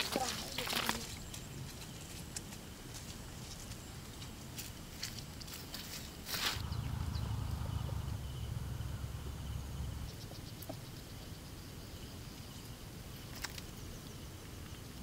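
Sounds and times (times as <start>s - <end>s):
insect chirping: 6.4s - 15.0s
low rumble: 6.6s - 10.7s.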